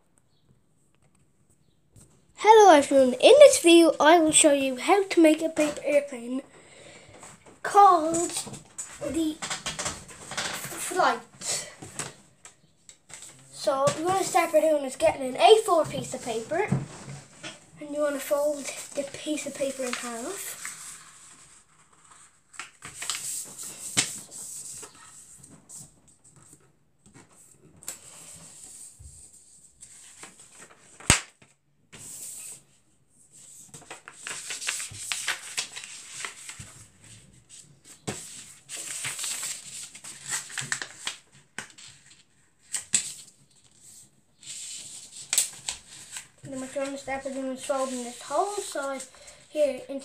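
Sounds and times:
paper rustling and sliding: 0:13.1 - 0:26.6, 0:33.4 - 0:50.0.

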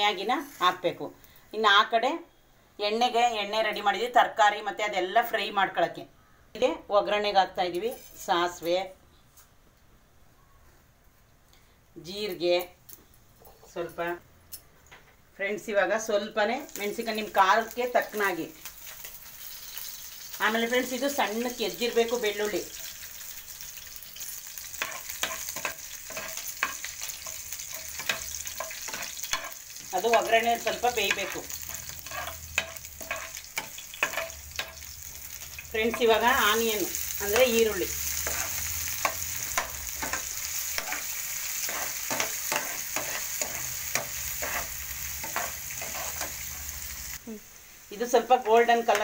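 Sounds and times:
spices sizzling in hot oil: 0:00.0 - 0:01.7, 0:07.4 - 0:08.7, 0:16.0 - 0:49.0
spatula scraping and knocking pan: 0:24.8 - 0:34.9, 0:37.3 - 0:46.5.

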